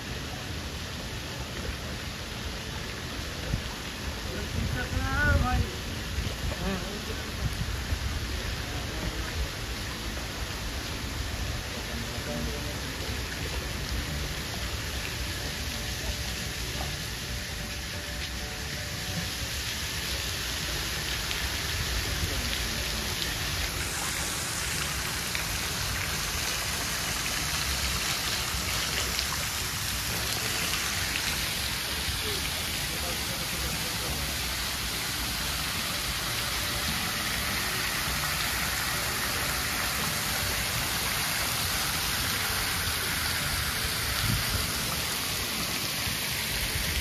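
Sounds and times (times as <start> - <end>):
waterfall hissing spray: 0.0 - 47.0.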